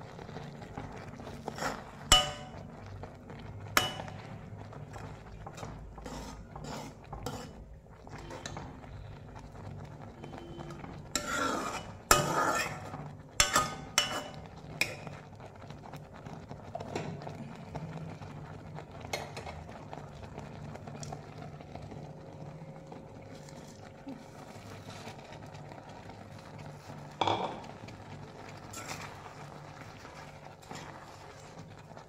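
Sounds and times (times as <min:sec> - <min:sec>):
faint bubbling sizzle: 0:00.0 - 0:32.0
spoon scraping metal pan: 0:01.4 - 0:02.7, 0:03.8 - 0:04.3, 0:05.0 - 0:08.8, 0:10.3 - 0:15.1, 0:28.7 - 0:29.2
spoon clinking against pan: 0:02.1 - 0:02.6, 0:03.8 - 0:04.2, 0:13.4 - 0:15.1.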